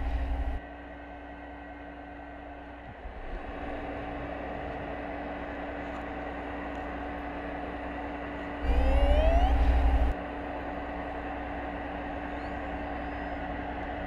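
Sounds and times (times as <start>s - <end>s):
underwater hum: 0.0s - 0.6s, 8.6s - 10.2s
killer whale rising call: 8.6s - 10.1s.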